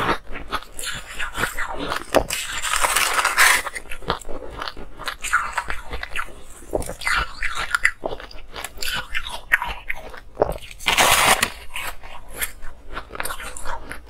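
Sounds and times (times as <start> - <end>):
ice being crunched and chewed: 0.0 - 14.0.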